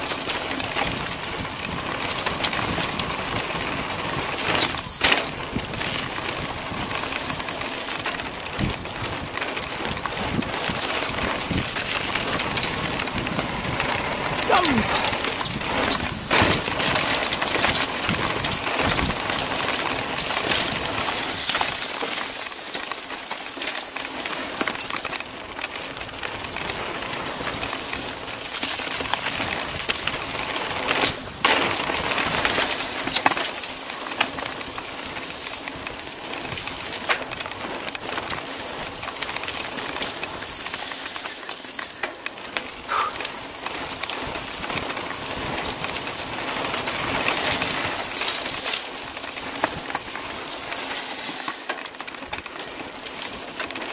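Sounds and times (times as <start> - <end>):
bike clicking and rattling: 0.0 - 53.9
tyre and wind rush: 8.5 - 21.7.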